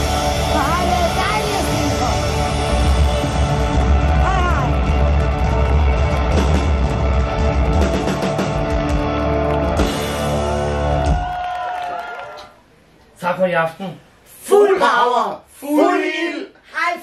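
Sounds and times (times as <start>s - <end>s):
live rock band playing: 0.0s - 11.3s.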